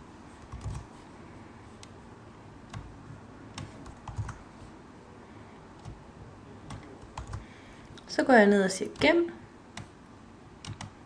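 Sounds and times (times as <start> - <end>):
low steady background hiss: 0.0 - 11.0
keyboard and mouse clicks: 0.4 - 0.9, 2.7 - 2.9, 3.5 - 4.4, 5.8 - 6.0, 6.7 - 7.4, 10.6 - 11.0.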